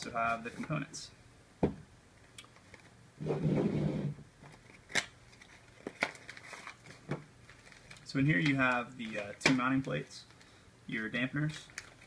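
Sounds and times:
cardboard sliding against cardboard: 3.2s - 4.2s.

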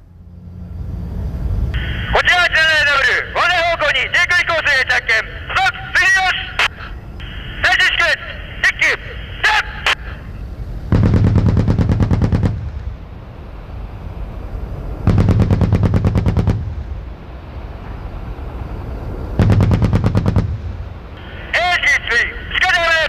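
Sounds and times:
rumbling echo: 0.0s - 22.6s
autocannon bursts: 10.9s - 13.0s, 15.1s - 17.0s, 19.4s - 23.0s.

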